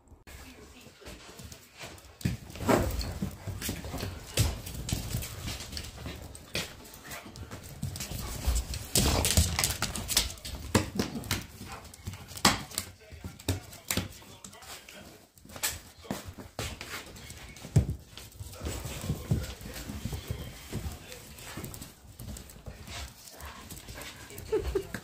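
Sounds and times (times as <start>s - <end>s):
puppy paws tapping on floor: 0.3s - 25.0s.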